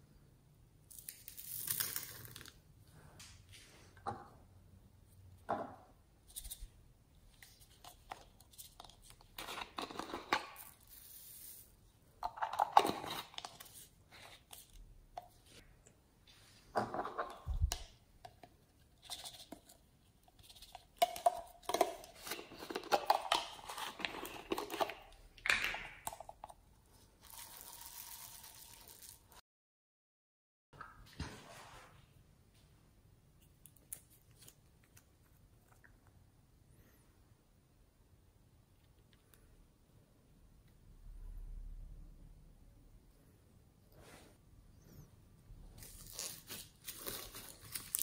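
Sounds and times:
plastic bottles of beads rattling: 27.2s - 29.3s.

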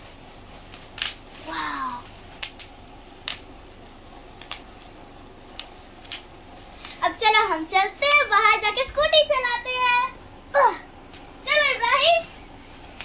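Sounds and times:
bubble wrap popping: 0.0s - 7.0s, 11.1s - 13.0s.

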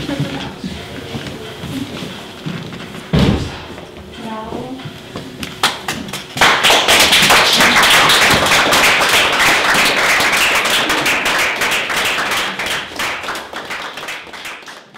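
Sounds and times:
audience applauding: 5.6s - 14.9s.

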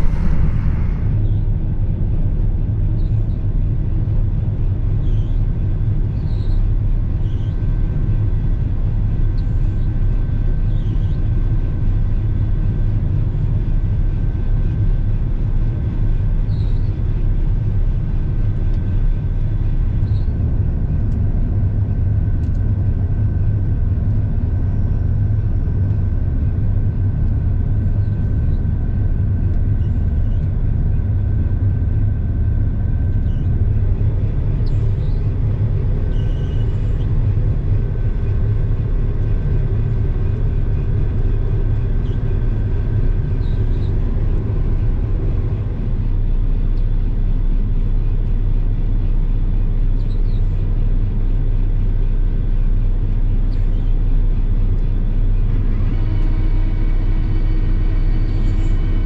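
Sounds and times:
high whine: 0.0s - 2.2s, 17.5s - 50.2s
combine harvester engine drone: 0.0s - 59.0s.

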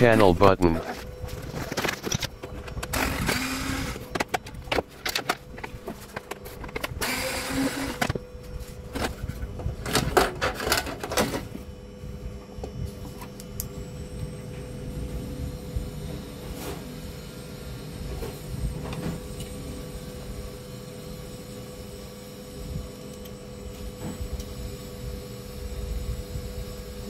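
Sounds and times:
electric screwdriver running: 2.8s - 4.1s, 6.8s - 8.2s.

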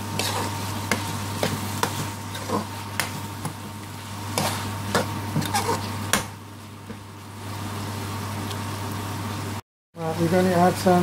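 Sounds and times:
chicken sizzling in a pan: 0.0s - 6.1s
metal spoon scraping a pan: 0.1s - 3.2s, 4.3s - 5.9s.

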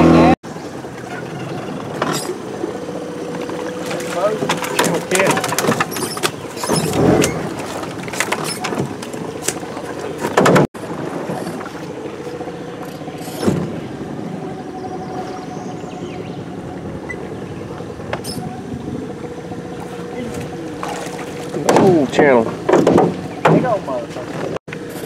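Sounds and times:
small boat motor humming: 0.0s - 25.0s.

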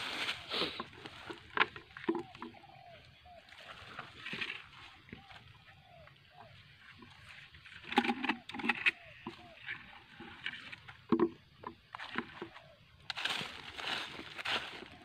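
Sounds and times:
brushing through undergrowth: 0.0s - 1.6s, 13.1s - 15.0s
footsteps crunching on dry leaves: 0.0s - 1.6s, 3.4s - 5.4s, 13.1s - 15.0s.

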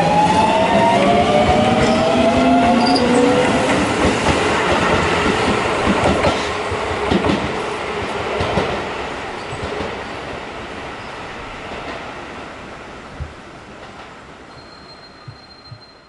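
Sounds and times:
train rumble: 0.0s - 16.0s
train wheels clattering over rail joints: 1.5s - 8.8s
electric train inverter tones: 14.5s - 16.0s.

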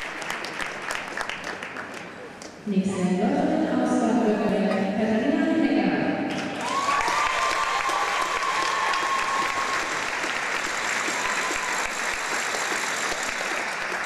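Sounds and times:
audience applauding: 0.0s - 2.4s, 6.3s - 14.0s.

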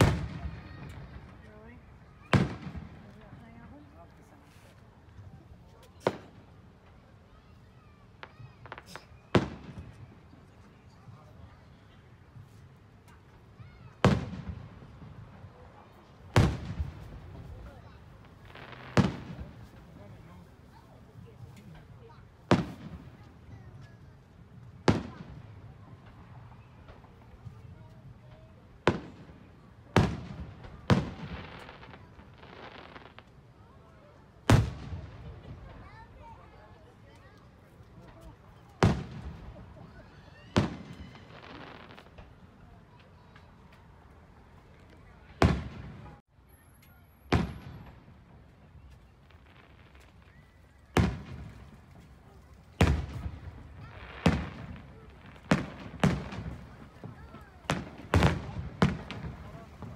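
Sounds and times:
fireworks booming overhead: 0.0s - 46.3s, 47.1s - 59.9s.

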